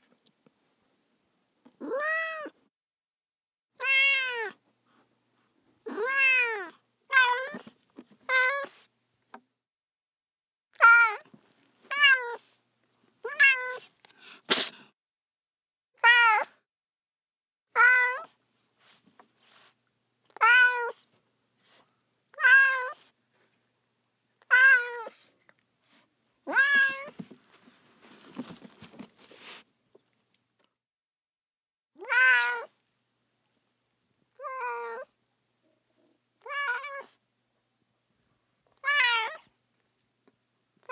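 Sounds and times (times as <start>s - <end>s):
cat meowing: 1.8s - 2.6s, 3.8s - 4.6s, 5.9s - 7.6s, 11.9s - 12.4s, 13.2s - 13.9s, 17.7s - 18.3s, 20.3s - 21.0s, 22.3s - 23.0s, 24.4s - 25.2s, 26.5s - 27.2s, 32.0s - 32.8s, 34.4s - 35.1s, 36.4s - 37.2s, 38.8s - 39.5s
faint rustling: 26.9s - 30.3s.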